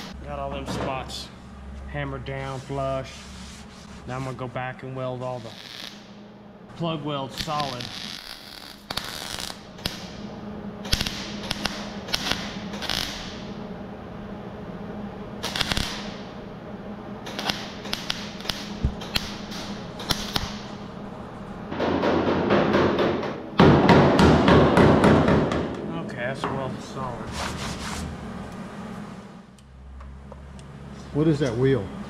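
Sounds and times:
welder crackling: 5.2s - 6.1s, 7.1s - 10.2s, 10.8s - 13.5s, 15.4s - 16.3s, 17.2s - 21.6s
low hum: 9.5s - 32.0s.

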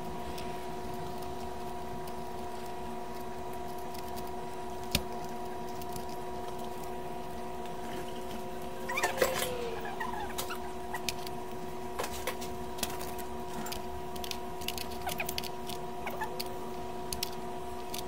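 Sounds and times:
steady tonal hum: 0.0s - 18.0s.

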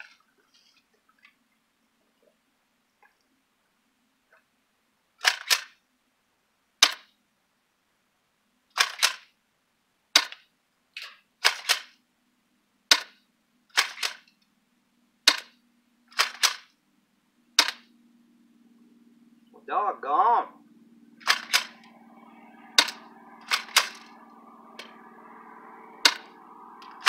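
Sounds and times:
airsoft shotgun pumping and firing: 5.2s - 5.8s, 6.8s - 7.1s, 8.8s - 9.3s, 10.2s - 12.0s, 12.9s - 14.3s, 15.3s - 16.8s, 17.6s - 17.9s, 21.2s - 21.8s, 22.8s - 24.1s.

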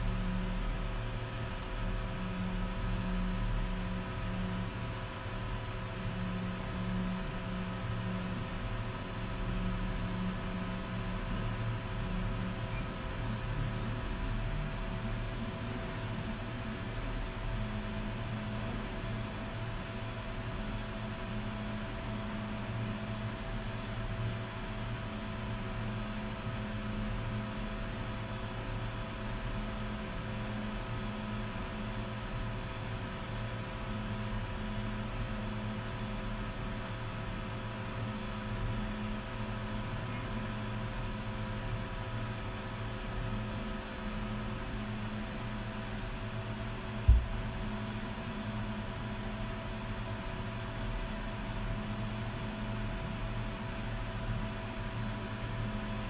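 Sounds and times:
printer fans and motors whining: 0.0s - 56.0s
dull thump: 47.1s - 47.5s.

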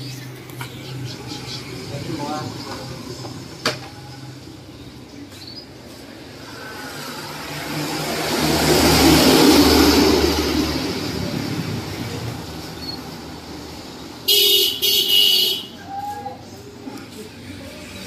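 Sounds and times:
vehicle passing: 0.0s - 18.0s
vehicle horn: 14.3s - 15.8s.

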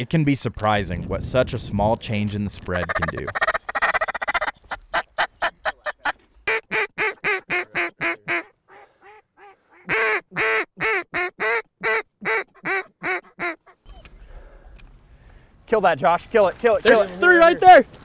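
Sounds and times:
duck calls quacking: 2.7s - 13.8s.

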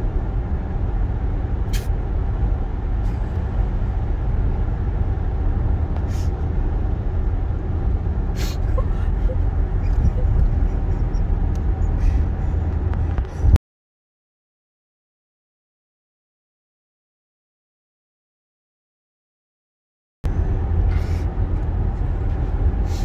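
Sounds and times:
car road noise rumble: 0.0s - 13.6s, 20.2s - 23.0s
brief hisses: 1.7s - 1.9s.

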